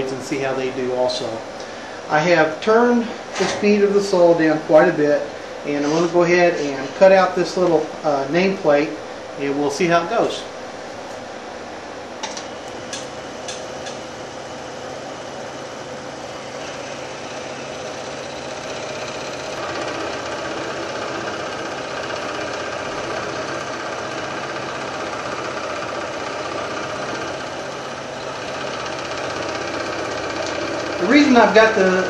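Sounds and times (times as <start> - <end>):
blade whine cutting acrylic: 12.3 - 32.0
scroll saw running: 12.7 - 32.0.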